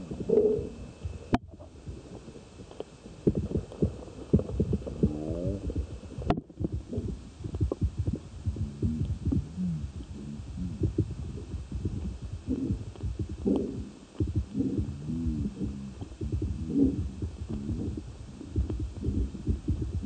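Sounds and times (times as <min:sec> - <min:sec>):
underwater thumps and knocks: 0:03.2 - 0:09.5, 0:10.8 - 0:13.6, 0:14.2 - 0:20.0.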